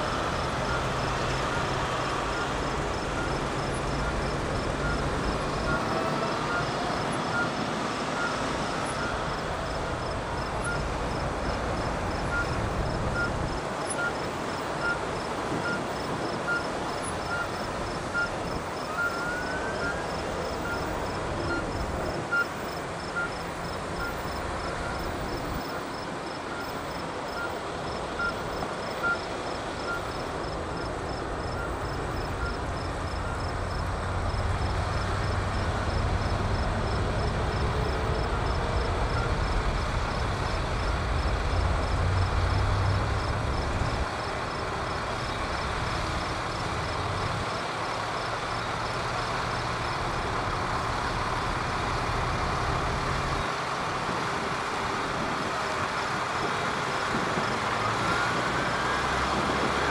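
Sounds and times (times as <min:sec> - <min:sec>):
fire truck engines rumbling: 0:00.0 - 0:59.9
tyres on road: 0:00.0 - 0:59.9
faint regular beeping: 0:00.1 - 0:33.8.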